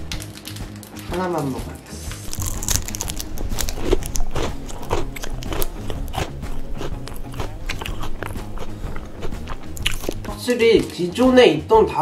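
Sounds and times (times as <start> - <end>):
biting and chewing wafer bar: 2.2 - 10.9.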